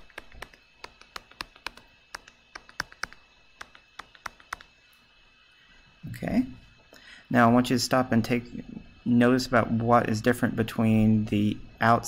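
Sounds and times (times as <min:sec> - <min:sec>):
pen tapping on drawing tablet: 0:00.0 - 0:04.7.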